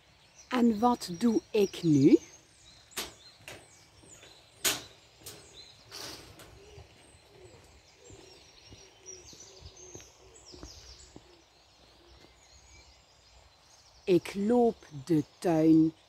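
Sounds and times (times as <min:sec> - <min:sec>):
birds chirping: 0:00.0 - 0:16.0
footsteps on metal grating: 0:03.0 - 0:12.4.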